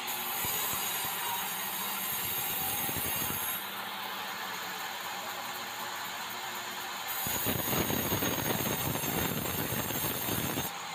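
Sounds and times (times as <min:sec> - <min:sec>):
saw cutting timber roughly: 0:00.0 - 0:03.7, 0:07.1 - 0:10.7
band sawmill running: 0:00.0 - 0:10.9.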